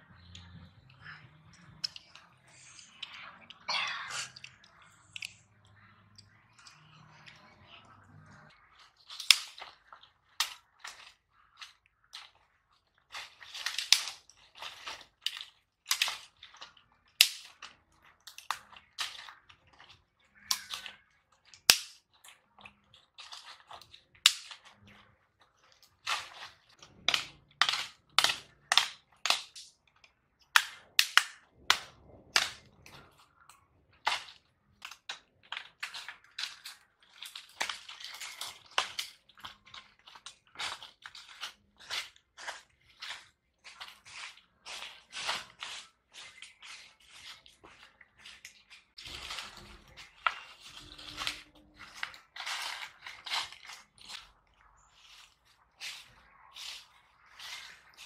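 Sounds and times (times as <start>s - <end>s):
dry twigs snapping: 9.1s - 9.7s, 13.1s - 17.7s, 21.6s - 22.0s, 24.2s - 24.6s, 30.5s - 32.7s
dry leaves crunching: 48.9s - 54.2s.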